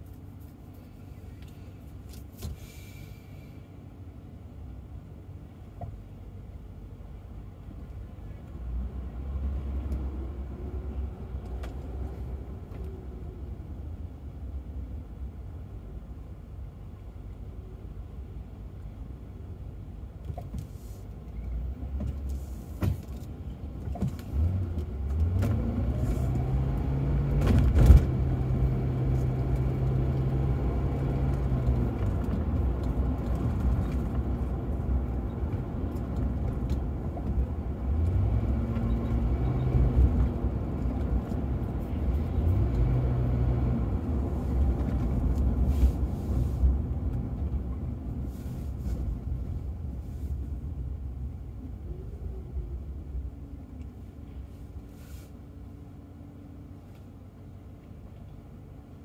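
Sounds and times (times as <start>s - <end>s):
road and tyre noise: 0.0s - 59.0s
car engine accelerating: 24.1s - 47.9s.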